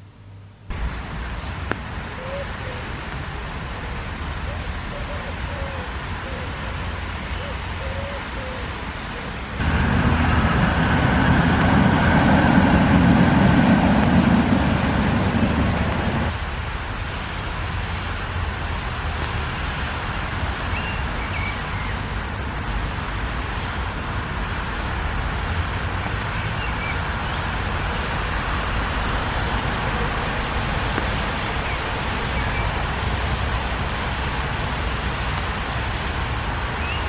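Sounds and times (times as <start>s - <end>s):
background traffic noise: 0.0s - 37.0s
vehicle passing close by: 9.6s - 16.4s.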